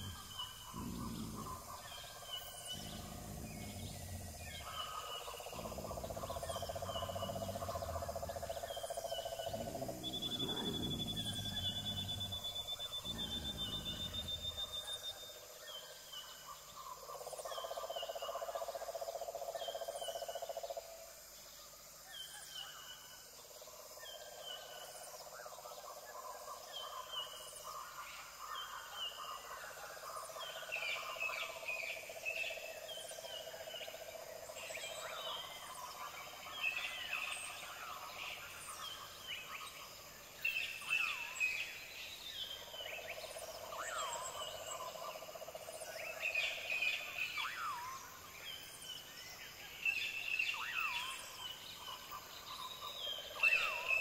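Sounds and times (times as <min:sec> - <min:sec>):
mid-pitched drone: 0:09.4 - 0:14.8
low rumble: 0:09.4 - 0:14.9.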